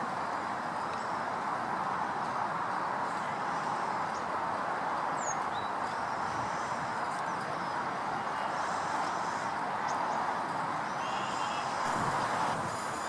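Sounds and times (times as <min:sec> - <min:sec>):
outdoor noise hiss: 0:00.0 - 0:13.0
faint bird chirps: 0:10.9 - 0:11.9.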